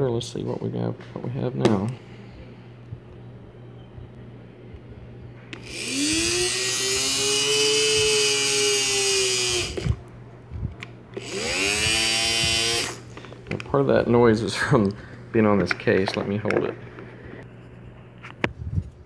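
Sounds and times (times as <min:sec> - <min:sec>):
electric motor whining: 0:05.6 - 0:10.0, 0:11.2 - 0:13.1.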